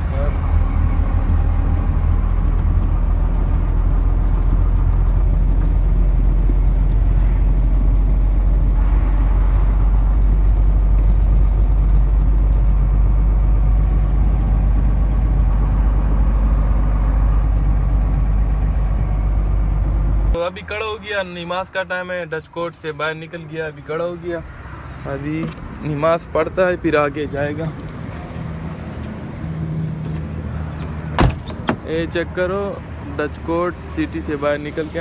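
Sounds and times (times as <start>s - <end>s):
truck engine rumble: 0.0s - 35.0s
tyre and wind noise: 0.5s - 20.4s.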